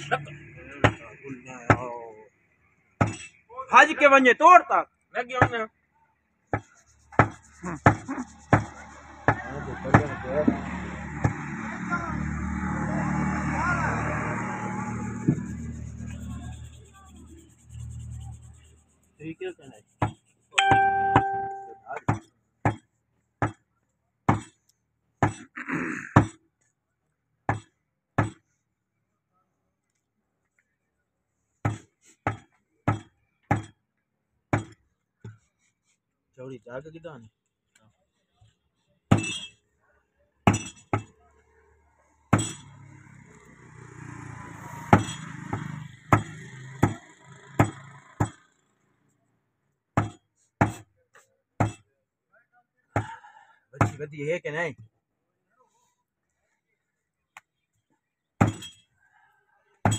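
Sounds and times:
knife chopping meat on wood: 0:06.5 - 0:11.6, 0:22.1 - 0:23.6, 0:24.3 - 0:24.5, 0:27.5 - 0:28.4, 0:31.6 - 0:33.7, 0:34.5 - 0:34.8, 0:45.4 - 0:48.4, 0:50.0 - 0:50.8.

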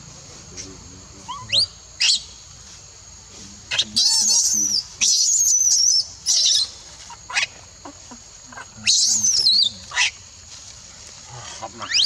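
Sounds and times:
baby monkey screaming: 0:01.2 - 0:02.3, 0:03.7 - 0:07.6, 0:08.6 - 0:10.2, 0:11.4 - 0:12.0.

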